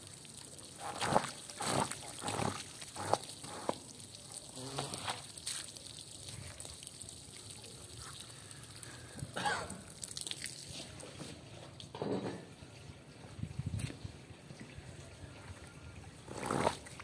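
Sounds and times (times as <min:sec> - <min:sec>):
hose water splashing on rug: 0:00.0 - 0:11.9, 0:16.2 - 0:17.0.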